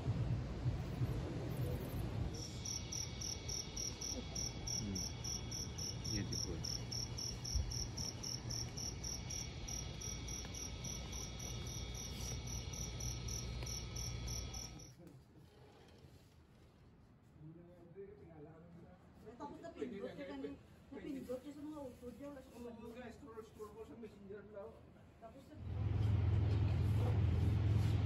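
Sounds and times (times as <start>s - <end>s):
cricket chirping: 1.7s - 14.9s.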